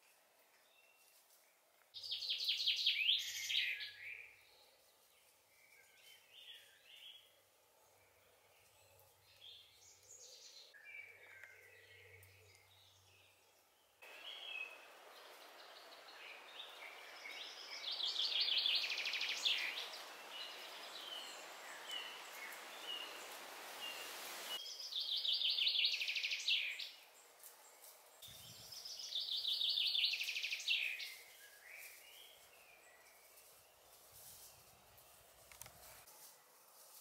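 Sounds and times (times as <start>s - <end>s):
birds chirping faintly: 0.5s - 37.0s
songbird singing: 1.9s - 36.1s
steady hiss: 14.0s - 24.6s.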